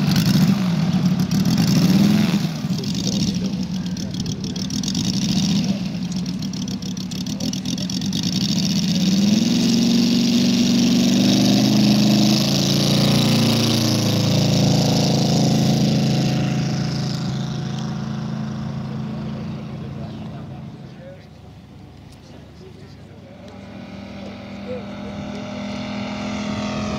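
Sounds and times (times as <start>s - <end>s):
model aircraft engine: 0.0s - 26.9s.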